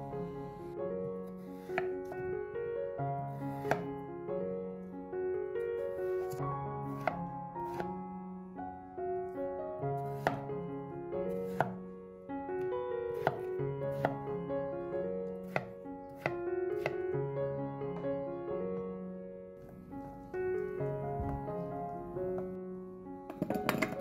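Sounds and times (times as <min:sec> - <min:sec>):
background music of held notes: 0:00.0 - 0:24.0
knife chopping on wooden board: 0:01.3 - 0:02.0, 0:03.5 - 0:03.9, 0:06.2 - 0:07.9, 0:10.1 - 0:10.5, 0:11.4 - 0:11.8, 0:13.2 - 0:14.2, 0:15.4 - 0:17.0.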